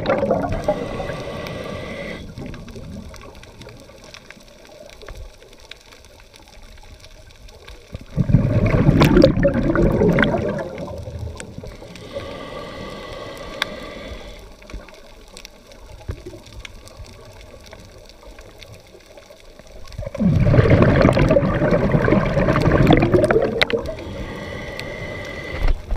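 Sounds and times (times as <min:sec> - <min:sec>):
exhaled bubbles gurgling underwater: 0:00.0 - 0:25.9
inhalation hiss: 0:00.4 - 0:02.5, 0:11.6 - 0:14.8, 0:23.5 - 0:25.9.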